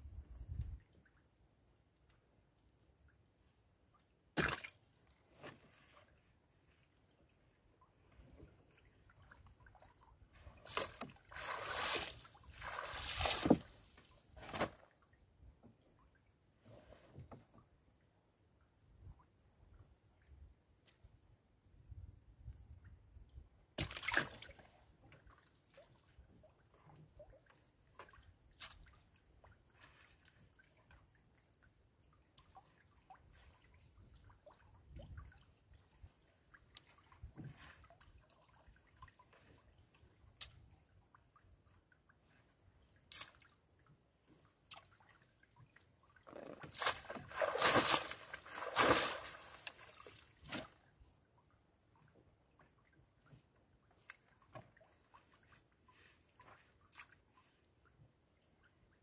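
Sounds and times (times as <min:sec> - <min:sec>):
water dripping and splashing: 0:10.7 - 0:13.6, 0:44.6 - 0:50.6.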